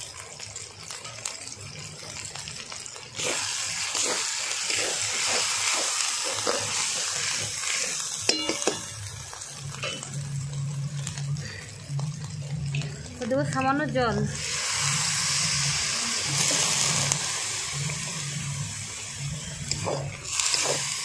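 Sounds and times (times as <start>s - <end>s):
spices sizzling in oil: 0.0s - 21.0s
spatula scraping pan: 3.2s - 8.8s
spatula clinking on metal pan: 8.3s - 8.9s.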